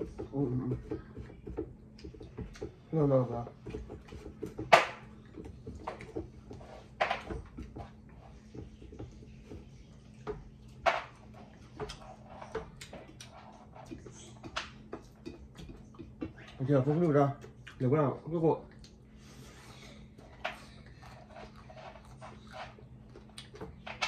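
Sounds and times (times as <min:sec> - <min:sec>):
wet chewing and lip smacks: 0:17.4 - 0:17.8, 0:18.7 - 0:19.0.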